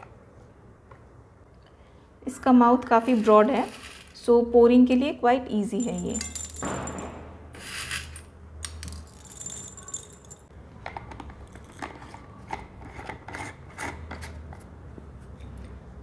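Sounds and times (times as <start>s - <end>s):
peppercorns clinking into glass jar: 5.8s - 6.7s.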